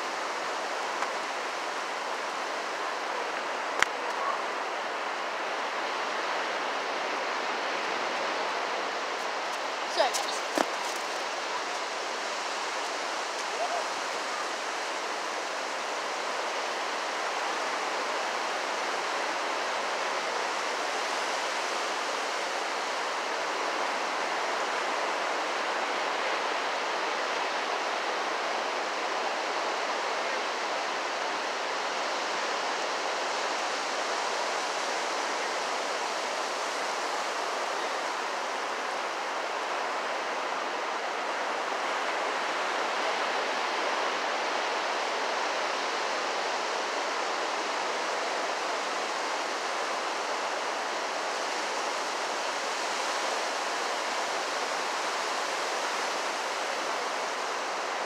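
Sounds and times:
ocean surf breaking: 5.2 - 18.2.

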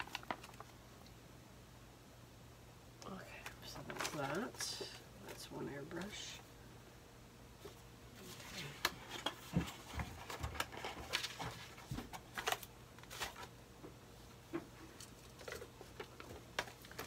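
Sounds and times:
cardboard and paper rustling: 0.0 - 0.7, 3.4 - 6.3, 7.6 - 13.5, 14.6 - 17.0.

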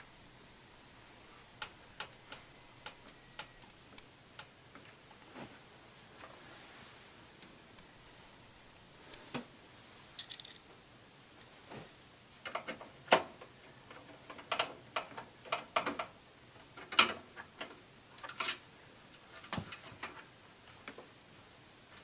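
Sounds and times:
clicks and knocks of metal parts: 10.2 - 10.7, 16.8 - 20.2.

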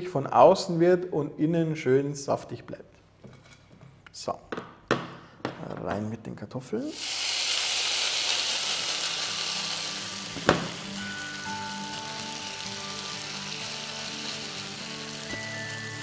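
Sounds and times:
knock: 4.5 - 6.0, 10.4 - 10.8
potatoes sizzling in frying pan: 6.9 - 16.0.

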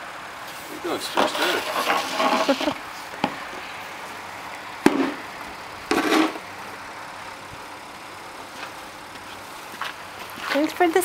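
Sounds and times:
snow shovel scraping asphalt: 0.5 - 2.8, 5.9 - 6.4.

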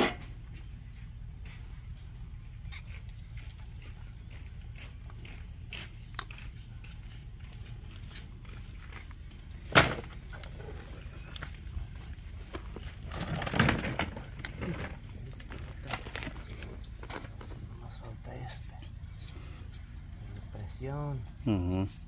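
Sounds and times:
scraping and rustling: 10.0 - 18.0.

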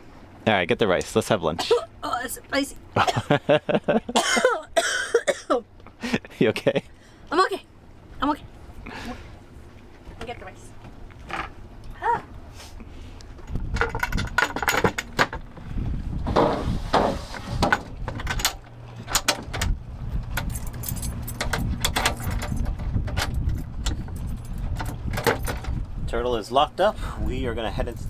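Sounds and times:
steady low hum: 0.0 - 28.0
keys jangling: 20.4 - 25.6.

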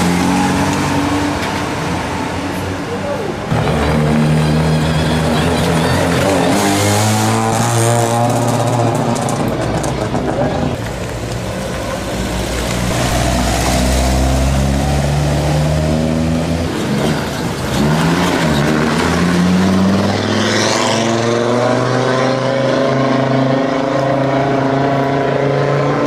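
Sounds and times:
rally car engine pulling away: 3.5 - 10.8, 12.2 - 26.0
rally car engine revving: 3.5 - 10.8, 12.5 - 26.0.

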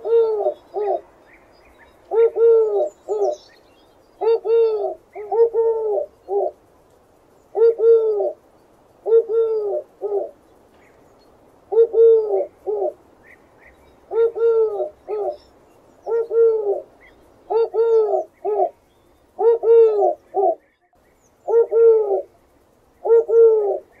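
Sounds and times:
dove cooing: 0.0 - 1.1, 1.7 - 3.6, 4.2 - 6.6, 7.5 - 8.4, 9.0 - 10.4, 11.7 - 20.8, 21.4 - 22.4, 23.0 - 24.0.

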